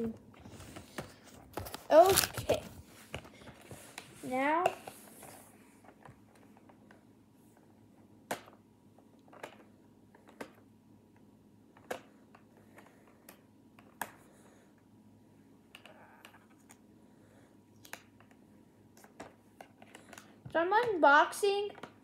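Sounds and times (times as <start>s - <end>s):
faint packaging rustle: 0.0s - 6.7s.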